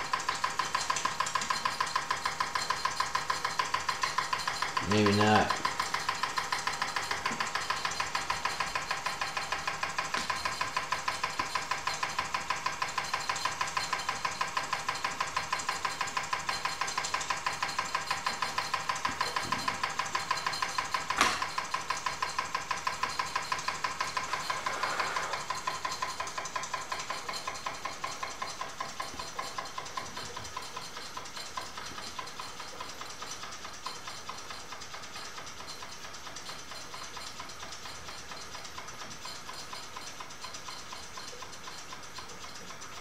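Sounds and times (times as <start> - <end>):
toy steam engine chuffing: 0.0 - 43.0
sharp click: 19.0 - 22.4.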